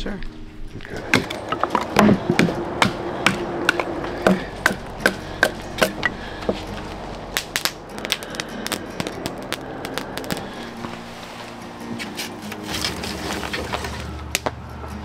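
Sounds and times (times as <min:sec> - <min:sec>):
hatchet chopping wood: 0:01.0 - 0:06.2.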